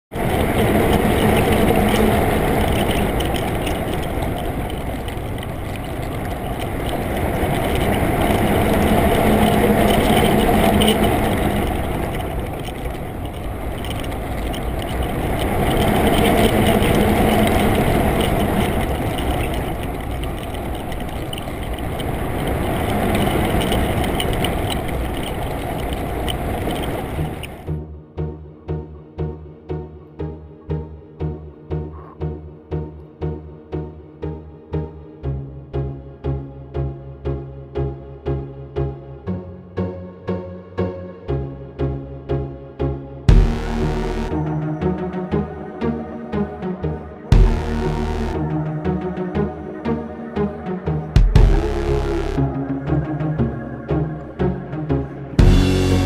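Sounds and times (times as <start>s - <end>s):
boat engine hum underwater: 0.1s - 27.7s, 43.3s - 56.0s
underwater water rushing: 0.2s - 27.7s.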